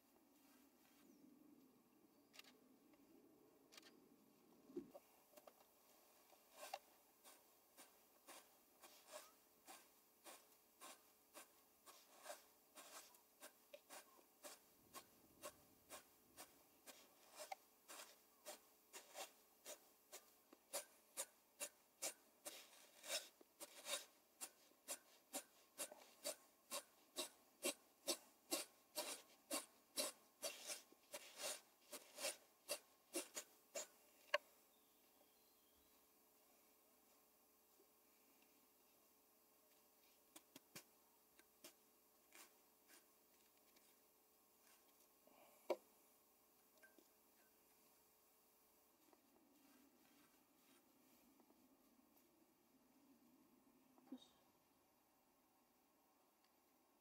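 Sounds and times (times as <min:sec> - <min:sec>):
fibres scraping through steel comb: 0:07.8 - 0:33.9.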